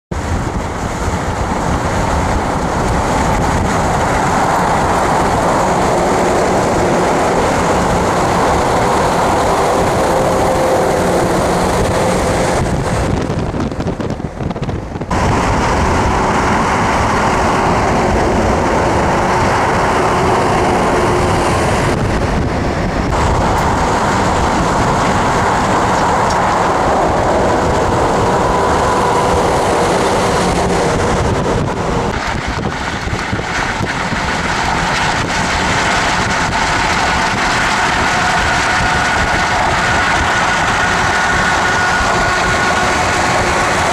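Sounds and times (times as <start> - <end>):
car road and wind noise: 0.1 - 43.9
tyres rumbling: 0.1 - 43.9.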